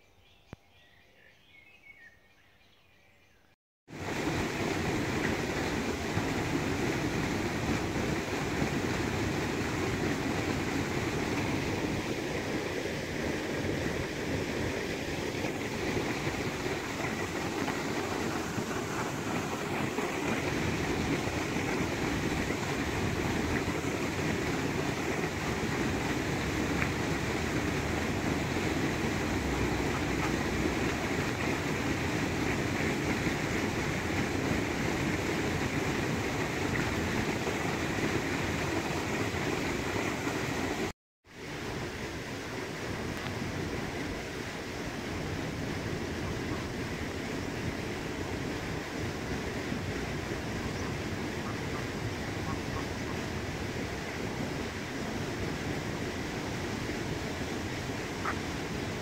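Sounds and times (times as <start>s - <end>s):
stream rushing over stones: 3.9s - 59.0s.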